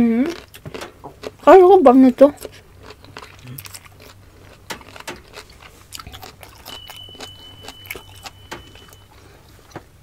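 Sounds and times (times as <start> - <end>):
wet chewing smacks: 2.4 - 9.0
thin high tone: 6.4 - 9.3.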